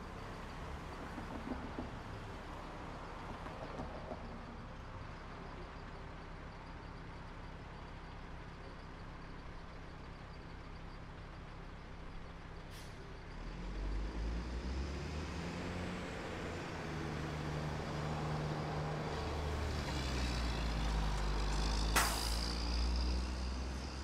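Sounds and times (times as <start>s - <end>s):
vehicle engine rumbling: 0.0s - 24.0s
short sharp hiss: 21.9s - 22.7s.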